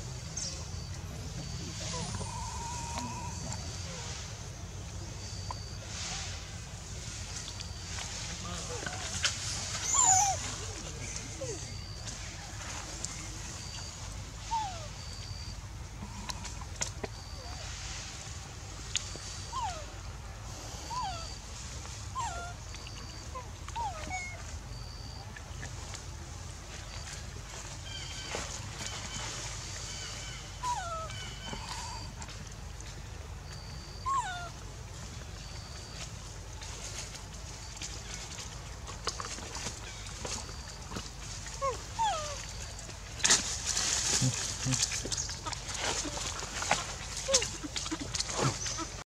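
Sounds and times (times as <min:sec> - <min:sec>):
forest ambience: 0:00.0 - 0:49.0
baby monkey whimpering: 0:01.4 - 0:04.1, 0:09.8 - 0:11.9, 0:22.2 - 0:24.4, 0:30.6 - 0:32.2, 0:34.1 - 0:34.6, 0:41.6 - 0:42.6, 0:47.2 - 0:49.0.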